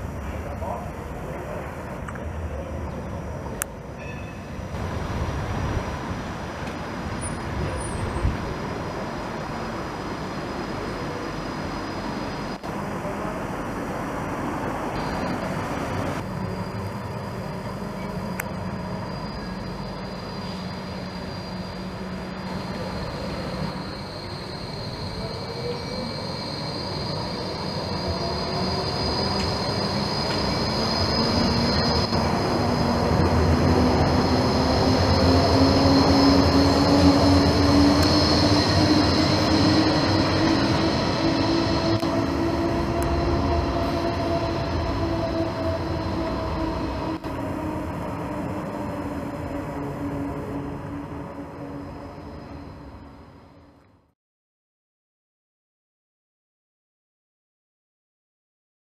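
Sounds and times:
steel wheels rumbling on rails: 0:00.0 - 0:53.7
high steady whistle: 0:16.2 - 0:32.3.

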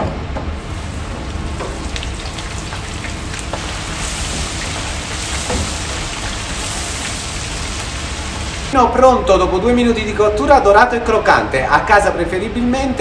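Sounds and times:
frying crackles: 0:00.6 - 0:08.8
oil bubbling and sizzling: 0:00.6 - 0:08.8.

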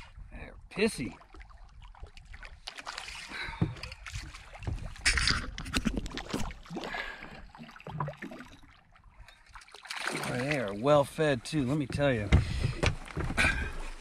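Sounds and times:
fish knocking and thumping: 0:03.5 - 0:06.8, 0:11.8 - 0:13.9.

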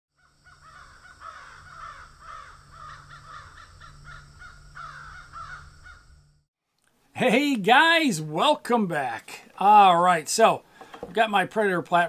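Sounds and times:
birds cawing: 0:00.1 - 0:06.3.

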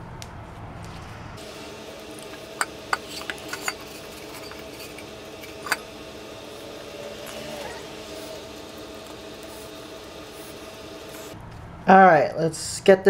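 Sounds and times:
faint steady hum: 0:00.0 - 0:11.8.

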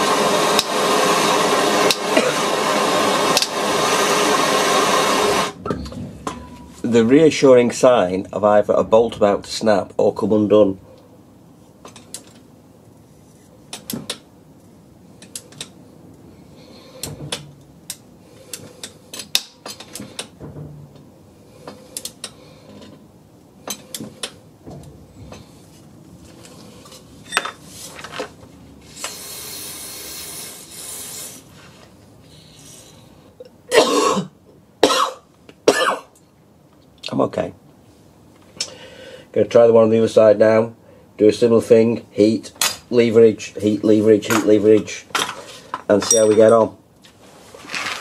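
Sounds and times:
hiss: 0:28.9 - 0:31.6.

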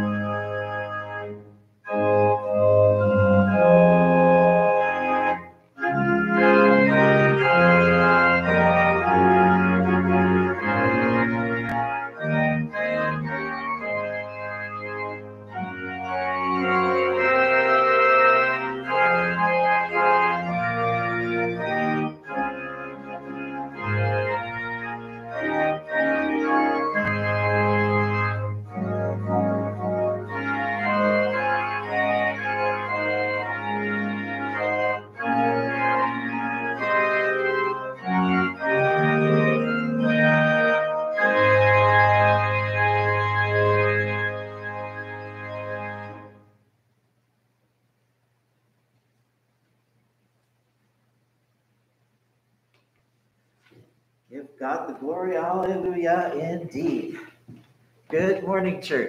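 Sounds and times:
church organ playing: 0:00.0 - 0:46.5, 0:54.3 - 0:57.3, 0:58.1 - 0:59.0.

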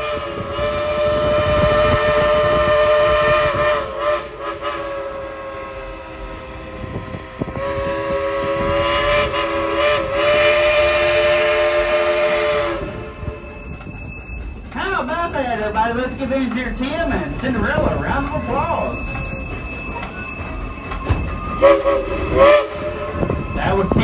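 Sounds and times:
steam whistle chord: 0:00.0 - 0:13.7, 0:21.0 - 0:24.0.

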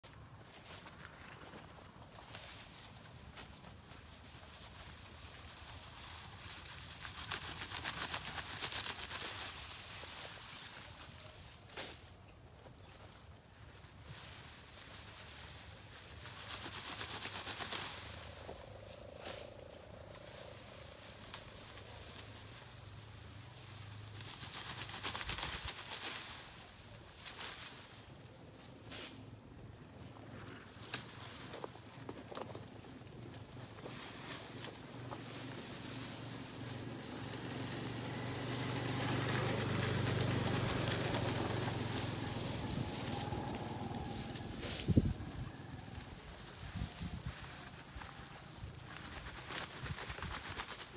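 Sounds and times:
leaves and stalks rustling: 0:00.0 - 0:50.9
vehicle engine humming: 0:32.8 - 0:46.6.

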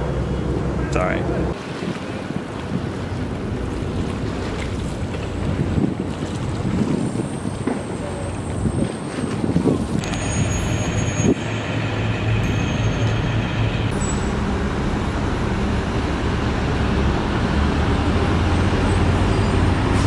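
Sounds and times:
road traffic noise: 0:00.0 - 0:20.0
low engine drone: 0:10.0 - 0:20.0.

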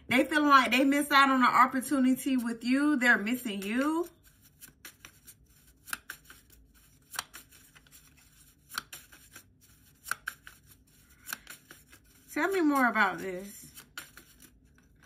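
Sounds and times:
cards being shuffled: 0:03.6 - 0:15.0.

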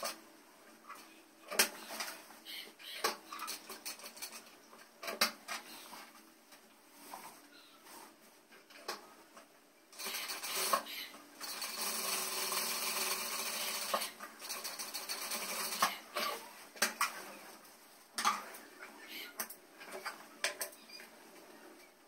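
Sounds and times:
sewing machine stitching: 0:10.0 - 0:16.4.

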